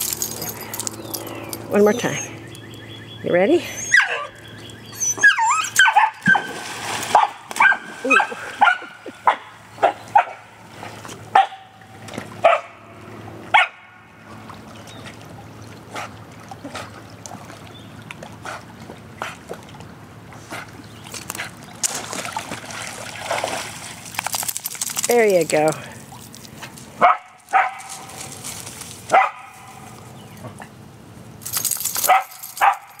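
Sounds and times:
dog barking: 5.8 - 6.5, 7.1 - 10.4, 11.3 - 11.7, 12.4 - 12.7, 27.0 - 27.9, 29.1 - 29.8, 32.0 - 33.0.

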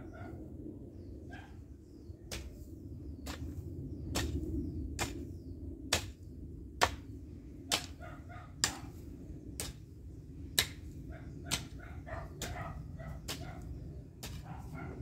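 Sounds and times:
hoe chopping into dry soil: 2.3 - 8.0, 8.6 - 11.8, 14.2 - 14.6.

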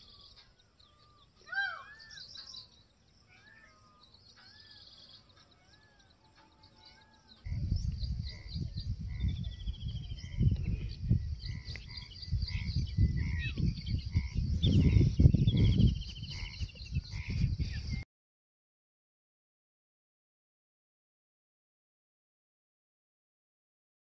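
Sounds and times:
bird descending trills: 0.0 - 7.4
wind rumble on microphone: 7.4 - 18.0.

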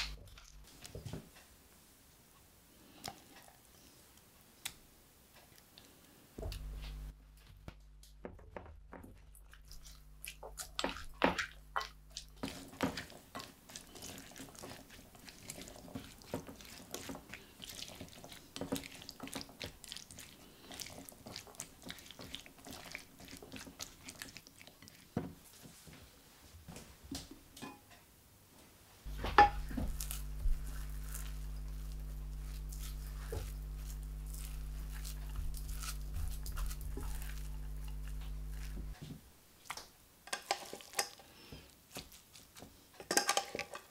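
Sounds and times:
spatula stirring in glass bowl: 9.3 - 25.7, 29.1 - 39.0
steady low hum: 29.1 - 39.1.

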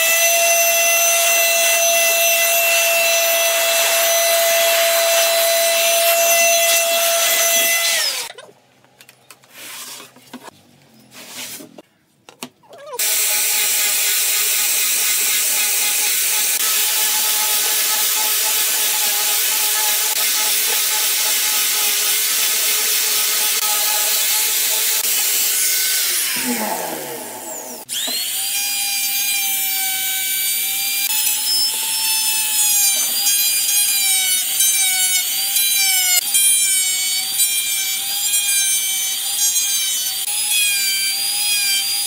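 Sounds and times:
angle grinder sanding wood: 0.0 - 8.3, 13.0 - 42.0
power tool winding down: 22.2 - 28.8.

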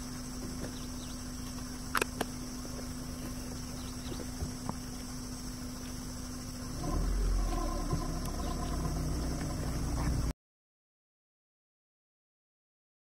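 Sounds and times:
insect drone: 0.0 - 10.3
low hum: 0.0 - 10.3
faint ticks: 7.4 - 10.2.

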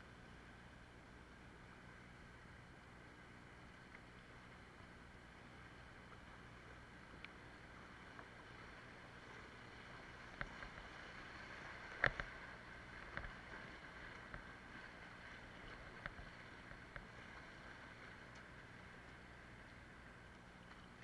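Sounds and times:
rushing river water: 0.0 - 21.0.

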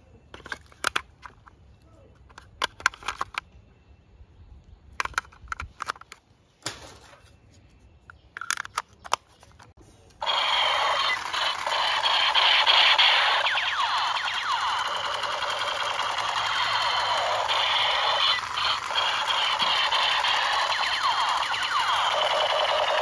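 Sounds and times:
batteries and plastic cover clicking: 0.3 - 1.5, 2.2 - 3.5, 5.0 - 6.2, 8.1 - 9.7
toy pistol siren sound effects: 10.2 - 23.0.

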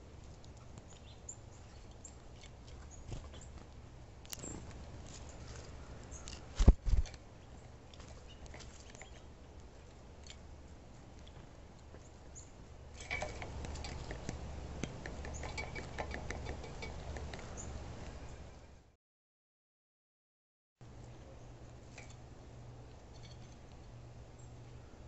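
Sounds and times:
woodpecker pecking at feeder: 7.9 - 18.2.

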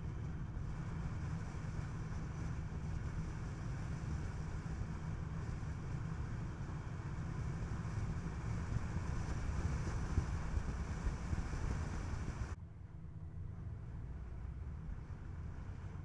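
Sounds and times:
road and wind noise: 0.0 - 16.0.

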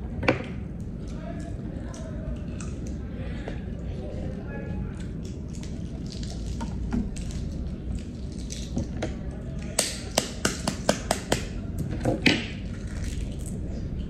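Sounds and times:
eggshell crackling as peeled: 5.0 - 9.0, 12.6 - 13.6.

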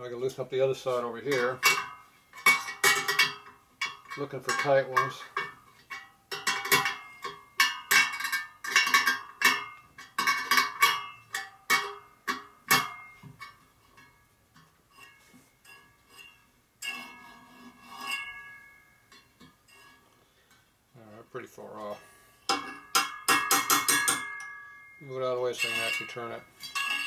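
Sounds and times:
metal spokes pinging: 0.7 - 27.0.

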